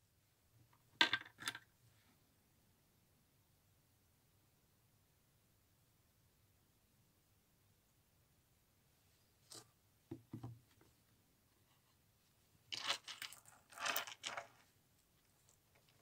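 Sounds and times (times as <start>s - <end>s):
rustling and scraping: 12.7s - 16.0s.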